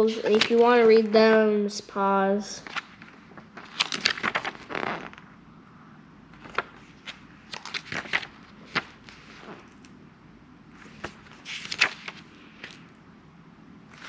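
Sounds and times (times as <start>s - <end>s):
paper pages turning: 0.0s - 1.2s, 2.6s - 5.2s, 6.4s - 10.0s, 10.8s - 12.9s.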